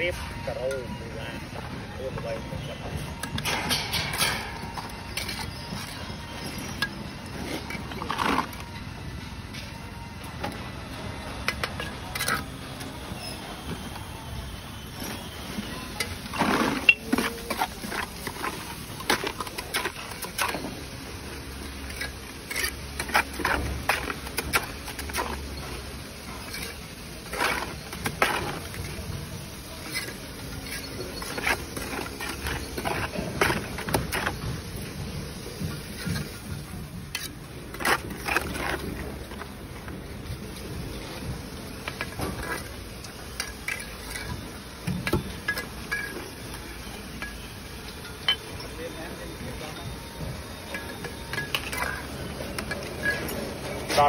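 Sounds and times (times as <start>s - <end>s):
trowel scraping wet mortar: 26.4s - 29.1s, 29.7s - 34.4s.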